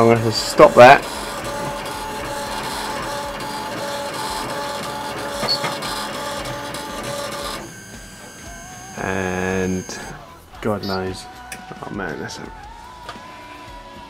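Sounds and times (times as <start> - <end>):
stepper motors whining: 0.0 - 11.1.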